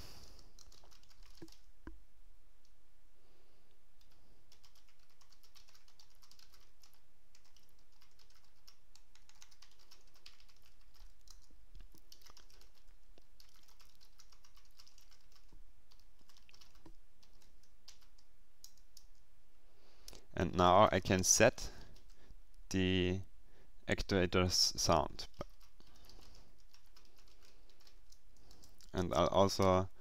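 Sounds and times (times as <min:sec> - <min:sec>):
typing on computer keyboard: 0:00.4 - 0:01.7, 0:04.0 - 0:19.2, 0:25.3 - 0:28.9.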